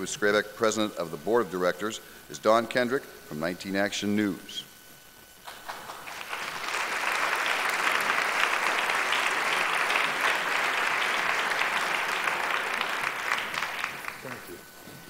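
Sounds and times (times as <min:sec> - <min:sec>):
audience applauding: 0:05.5 - 0:14.6.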